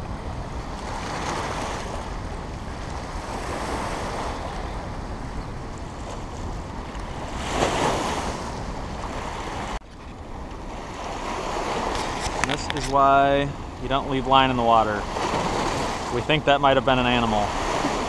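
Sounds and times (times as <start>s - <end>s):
turbulent water rushing: 10.8s - 18.0s.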